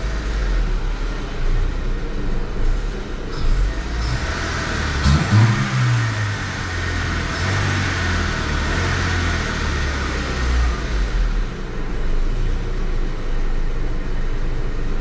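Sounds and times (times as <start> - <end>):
car engine revving and idling: 0.0 - 15.0.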